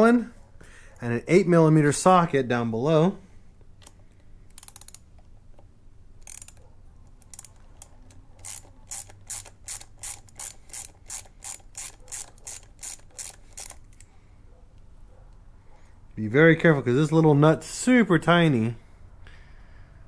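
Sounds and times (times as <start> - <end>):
ratchet clicking: 3.8 - 5.1, 6.2 - 14.1.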